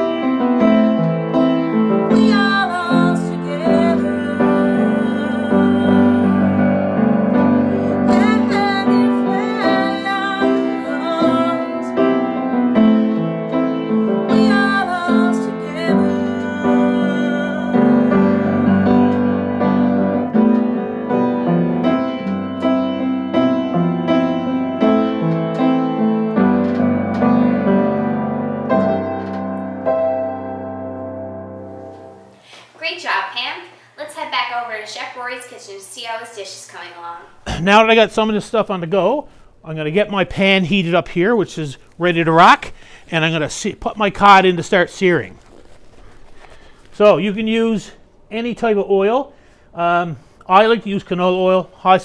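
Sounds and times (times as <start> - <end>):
piano playing: 0.0 - 32.4
woman singing: 2.0 - 12.5, 14.2 - 19.6.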